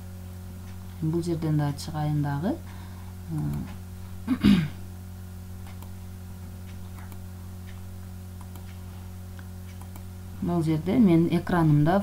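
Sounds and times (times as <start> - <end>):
steady electrical hum: 0.0 - 12.0
computer mouse clicks: 5.6 - 6.0, 6.7 - 7.8, 8.4 - 8.8, 9.6 - 10.1.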